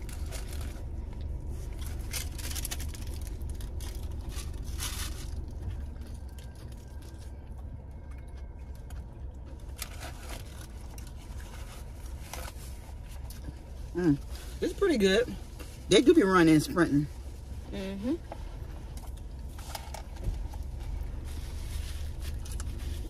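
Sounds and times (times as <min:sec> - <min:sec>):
paper wrappers rustling: 0:00.0 - 0:07.3
low hum: 0:00.0 - 0:23.0.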